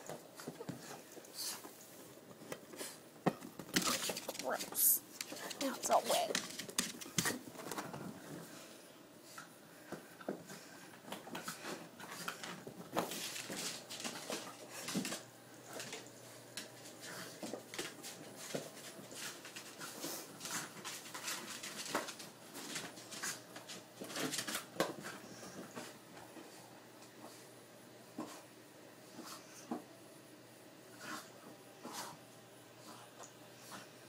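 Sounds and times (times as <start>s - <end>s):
dog playing with ball: 3.2s - 8.1s.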